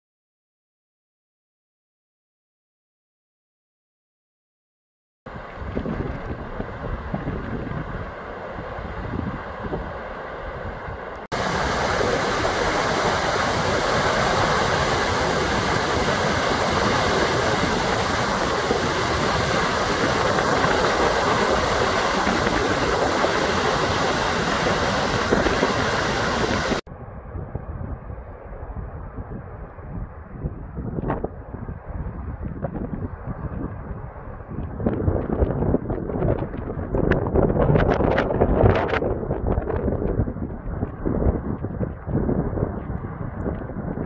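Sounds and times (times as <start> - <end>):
waterfall roaring: 5.3 - 26.8
wind rumbling on microphone: 5.3 - 44.0.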